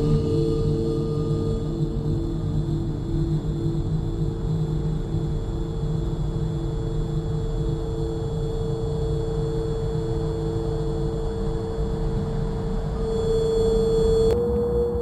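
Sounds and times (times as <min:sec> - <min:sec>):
dark ambient drone music: 0:00.0 - 0:15.0.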